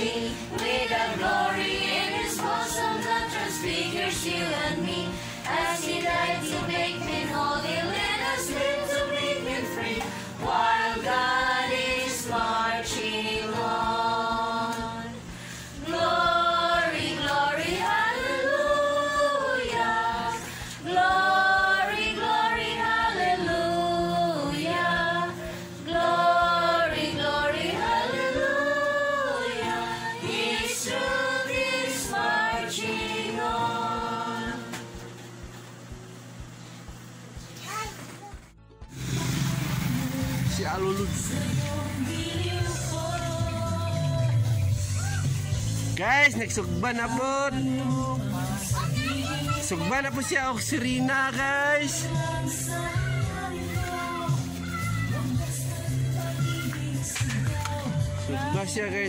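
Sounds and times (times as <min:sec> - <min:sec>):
voices singing: 0:00.0 - 0:35.4, 0:39.7 - 0:59.0
musical accompaniment: 0:38.5 - 0:49.9.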